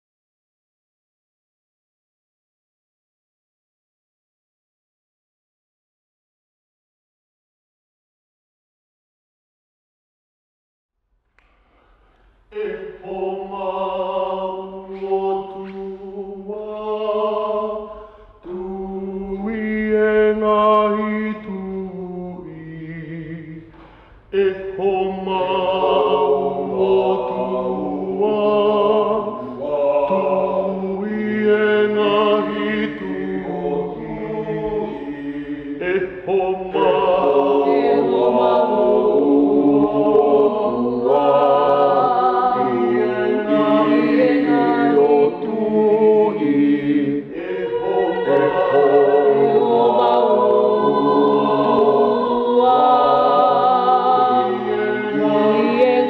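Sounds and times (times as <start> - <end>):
group chanting a hymn a cappella: 12.5 - 56.0.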